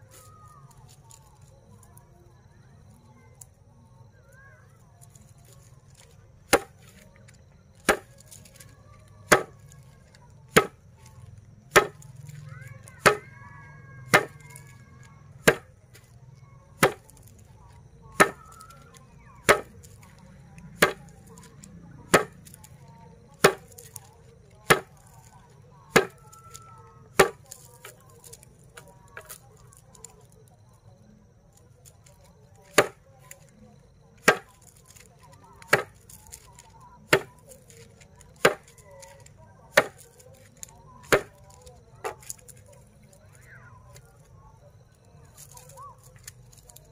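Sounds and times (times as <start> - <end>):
grass bundle thwacking on board: 6.5 - 7.0, 7.8 - 9.8, 10.5 - 11.1, 11.7 - 12.4, 13.0 - 13.3, 14.1 - 14.7, 15.4 - 16.1, 16.8 - 17.3, 18.2 - 20.1, 20.7 - 22.6, 23.4 - 25.2, 25.9 - 29.4, 32.6 - 33.4, 34.2 - 37.8, 38.4 - 42.7.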